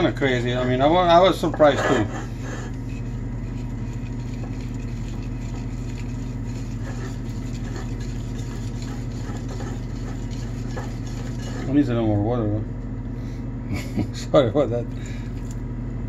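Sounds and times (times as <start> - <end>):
whisk beating batter in bowl: 0.0 - 12.3
low mechanical hum: 0.0 - 16.0.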